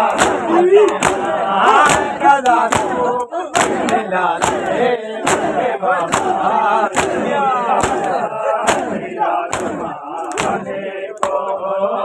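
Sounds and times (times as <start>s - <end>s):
men beating chests in unison: 0.0s - 11.6s
men chanting and shouting: 0.0s - 12.0s.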